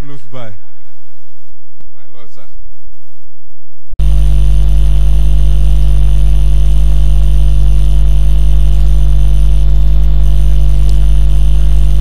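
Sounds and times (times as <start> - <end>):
electrical hum with hiss: 4.0 - 12.0.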